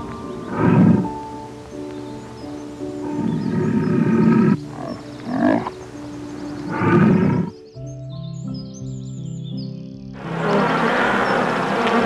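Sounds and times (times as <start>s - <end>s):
background music: 0.0s - 12.0s
animal calling roughly: 0.2s - 1.3s, 3.0s - 5.8s, 6.6s - 7.6s.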